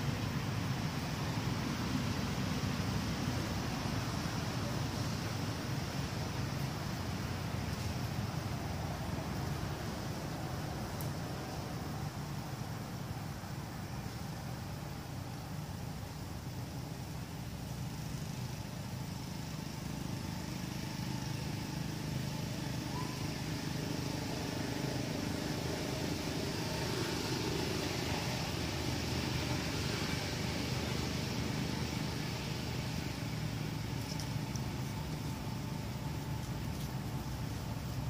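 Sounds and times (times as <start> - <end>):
even hiss: 0.0 - 38.0.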